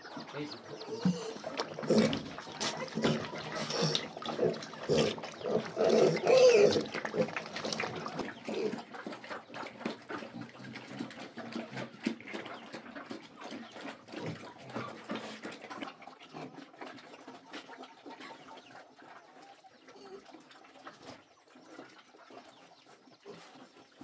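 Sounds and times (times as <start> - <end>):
chicken clucks: 0.0 - 24.0
pigs chomping and slurping: 0.0 - 24.0.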